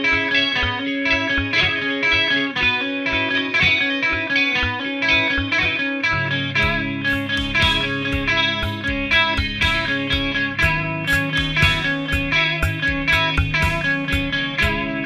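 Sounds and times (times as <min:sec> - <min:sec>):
electric guitar picking notes: 0:00.0 - 0:15.0
heavy low rock part: 0:06.5 - 0:15.0.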